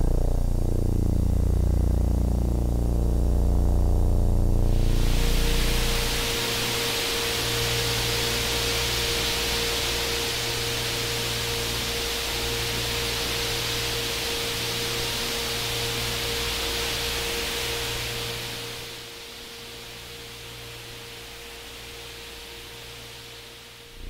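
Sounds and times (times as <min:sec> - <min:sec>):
low hum: 0:00.0 - 0:06.4
steady hiss: 0:04.7 - 0:24.0.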